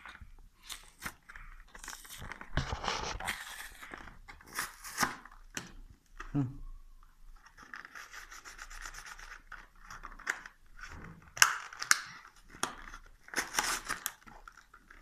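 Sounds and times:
package rubbing and scraping: 1.8s - 5.0s
plastic cracking and snapping: 9.5s - 15.0s.

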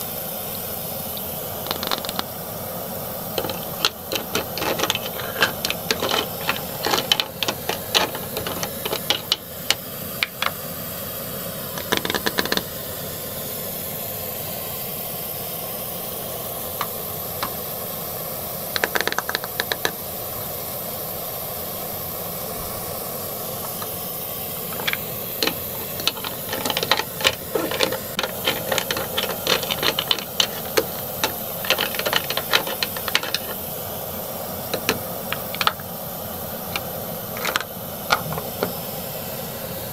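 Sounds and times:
steady hiss: 0.0s - 39.9s
plastic toys clattering in toy pot: 1.7s - 2.3s, 3.3s - 10.6s, 11.8s - 12.7s, 18.8s - 20.0s, 24.7s - 33.7s, 34.7s - 36.0s, 36.6s - 38.8s.

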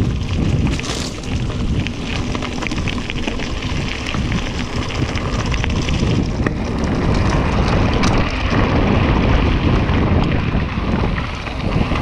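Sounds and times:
bike rattling with small clicks: 0.0s - 12.0s
tyres rolling over dirt: 0.0s - 12.0s
wind buffeting microphone: 0.0s - 12.0s.

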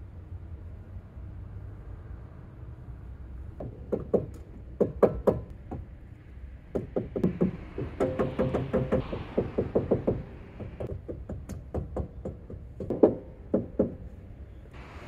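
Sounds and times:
sharp knocks: 6.7s - 14.1s.

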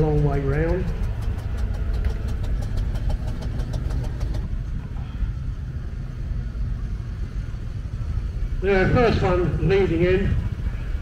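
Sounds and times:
fast even ticking: 0.0s - 4.6s
van engine rumbling past: 0.0s - 11.0s.

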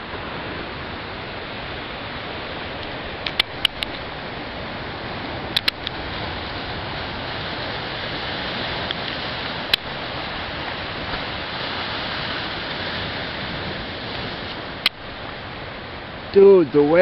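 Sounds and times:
surf washing over rocks: 0.0s - 17.0s
sharp click: 3.2s - 4.0s, 5.6s - 6.0s.

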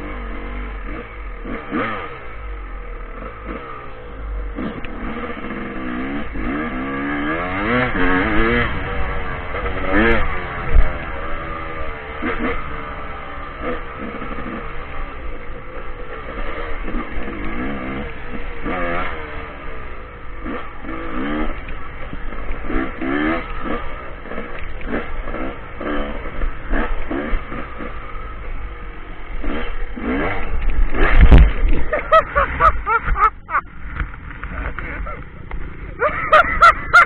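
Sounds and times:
dirt bike engine revving: 0.0s - 37.0s.

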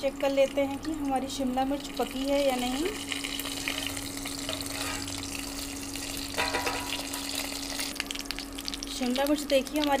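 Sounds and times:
food sizzling in oil: 0.0s - 10.0s
steady low hum: 0.0s - 10.0s
metal lid clatter: 4.5s - 5.0s, 6.4s - 7.2s.

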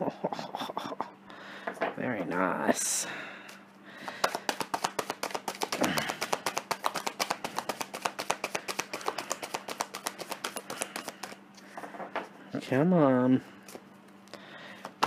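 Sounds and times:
cards being shuffled: 4.1s - 11.4s.

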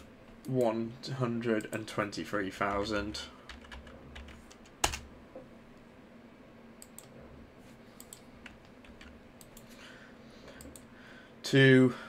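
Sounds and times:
computer mouse and keyboard clicks: 8.0s - 9.8s.

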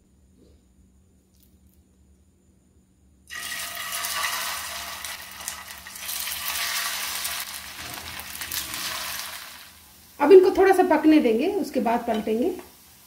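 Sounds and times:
food sizzling in hot oil: 3.3s - 13.0s.

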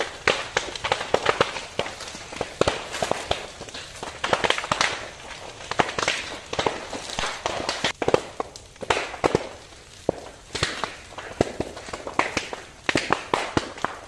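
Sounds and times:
fire hissing: 0.0s - 13.3s
burning brush crackling: 0.0s - 14.0s
sharp pops and cracks: 0.0s - 14.0s.

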